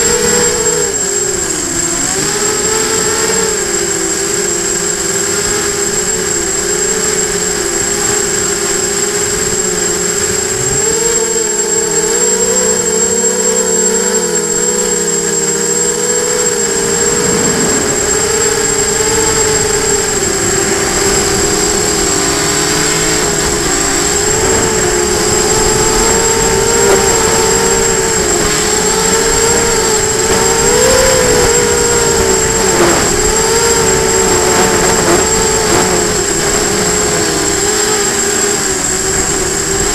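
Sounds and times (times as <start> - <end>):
drone motors and propellers whining: 0.0 - 39.9
wind rumble on microphone: 16.0 - 39.9.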